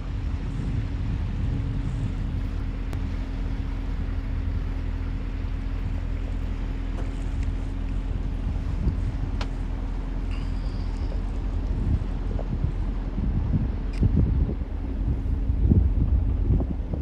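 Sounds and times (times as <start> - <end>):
motor boat engine humming: 0.0 - 17.0
water wash: 0.0 - 17.0
wind noise: 0.0 - 17.0.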